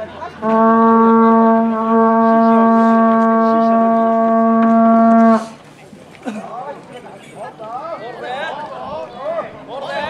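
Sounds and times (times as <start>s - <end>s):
horn long steady note: 0.4s - 5.6s.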